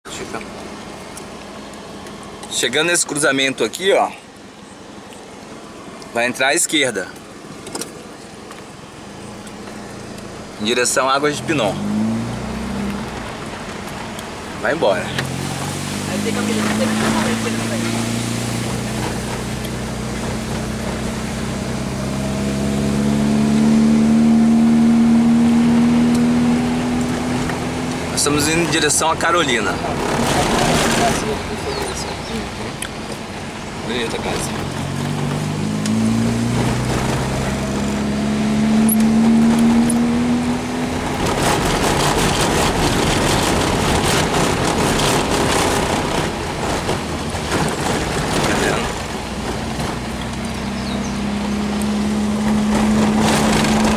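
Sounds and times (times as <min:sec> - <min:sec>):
car engine running: 0:00.0 - 0:53.9
road noise on dirt road: 0:00.0 - 0:53.9
knocks from rough road: 0:52.4 - 0:53.9.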